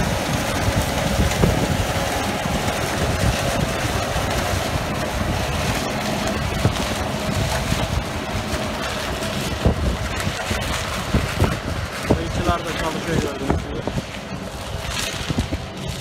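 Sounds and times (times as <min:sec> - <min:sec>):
combine harvester running: 0:00.0 - 0:16.0
wind buffeting microphone: 0:00.0 - 0:16.0.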